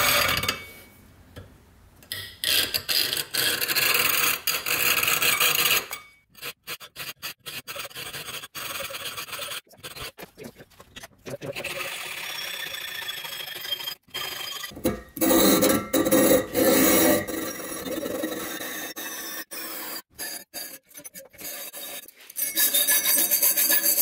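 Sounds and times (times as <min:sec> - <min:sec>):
hacksaw cutting metal fins: 0:02.1 - 0:10.2, 0:13.0 - 0:24.0.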